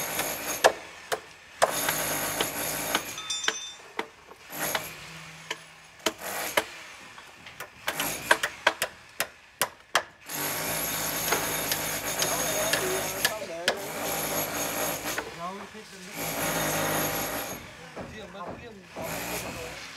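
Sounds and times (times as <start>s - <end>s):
tool scraping on bricks: 1.6s - 8.8s, 10.3s - 17.7s.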